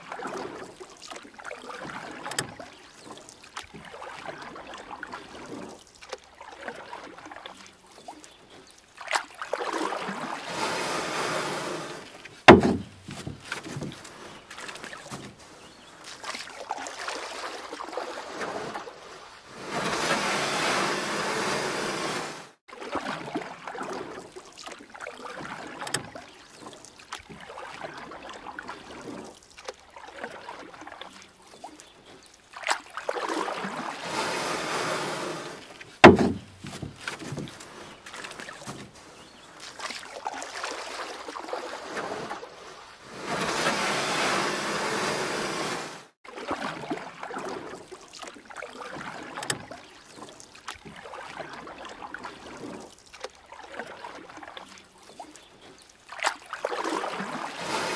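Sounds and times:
kayak paddle splashing: 0:00.0 - 0:57.9
water lapping against kayak hull: 0:00.0 - 0:57.9
sharp knock: 0:12.5 - 0:13.0, 0:36.0 - 0:36.5.

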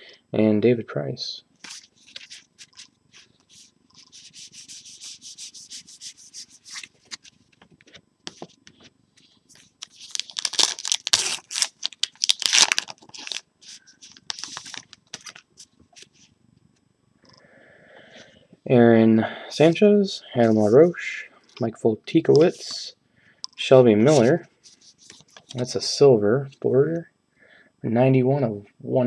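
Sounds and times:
wrapper crinkling and tearing: 0:09.8 - 0:15.5.

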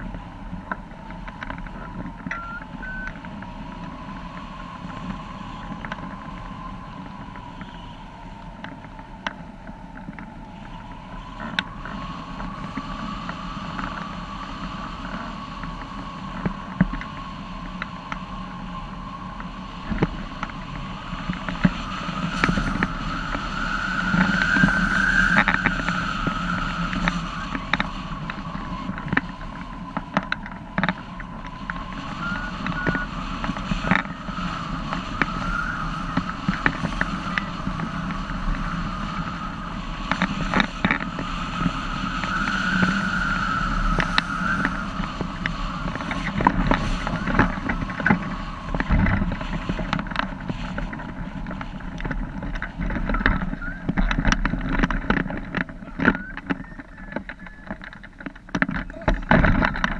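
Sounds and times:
high wind whistle: 0:00.0 - 0:58.3
air rushing past glider: 0:00.0 - 0:59.9.

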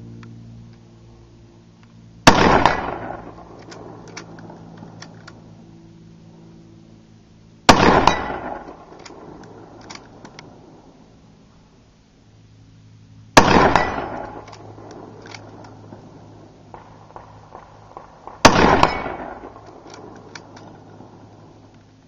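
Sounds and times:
rifle shots with echo: 0:02.2 - 0:04.6, 0:07.7 - 0:10.8, 0:13.4 - 0:15.6, 0:16.7 - 0:21.5.

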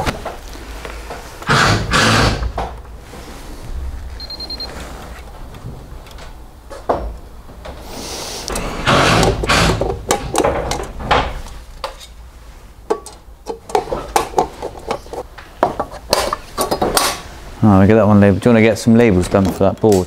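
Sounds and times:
rubbing and scraping on plastic: 0:13.7 - 0:16.6.

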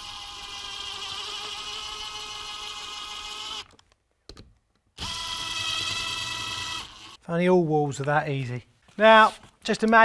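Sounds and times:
cordless drill motor whining: 0:00.0 - 0:03.8, 0:05.0 - 0:07.2.

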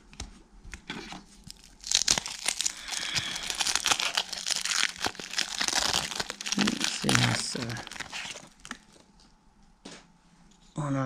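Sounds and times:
foil wrapper crinkling and tearing: 0:01.4 - 0:09.2.

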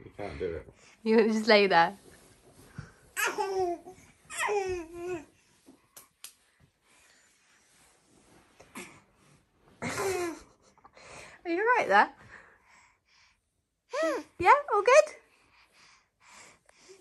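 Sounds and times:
baby babbling: 0:03.2 - 0:05.3.

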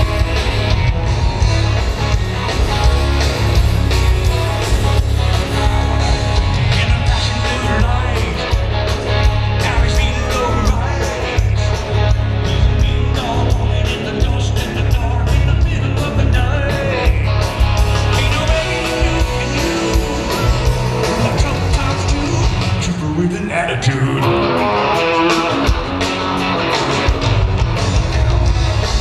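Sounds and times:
heavy bass: 0:00.0 - 0:29.0
person singing: 0:04.4 - 0:08.7, 0:09.6 - 0:11.8, 0:12.4 - 0:25.9.

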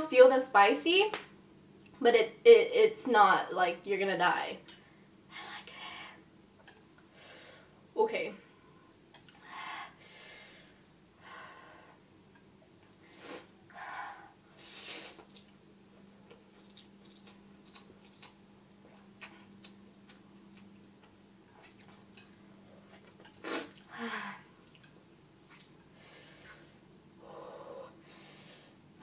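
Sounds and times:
person breathing: 0:07.1 - 0:07.8, 0:09.4 - 0:12.0, 0:23.9 - 0:24.5, 0:26.0 - 0:28.8
soft chewing: 0:15.1 - 0:23.9, 0:24.5 - 0:26.9.

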